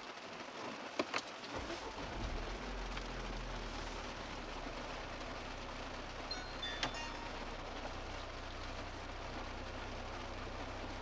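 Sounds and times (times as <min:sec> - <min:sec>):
car engine starting and idling: 0:00.1 - 0:11.0
electronic beep: 0:06.3 - 0:07.5.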